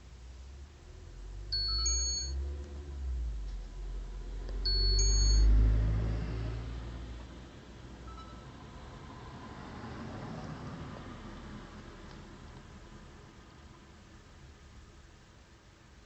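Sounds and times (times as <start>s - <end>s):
high electronic chime: 1.5s - 2.4s, 4.7s - 5.5s
car passing on wet road: 5.5s - 7.4s, 9.0s - 13.0s.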